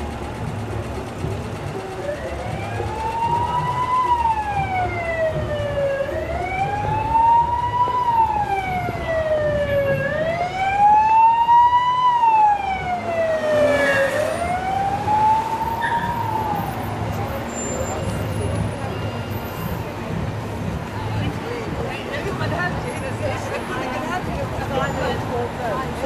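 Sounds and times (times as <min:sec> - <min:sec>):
city street traffic rumble: 0:00.0 - 0:26.0
emergency siren wailing: 0:02.0 - 0:18.0.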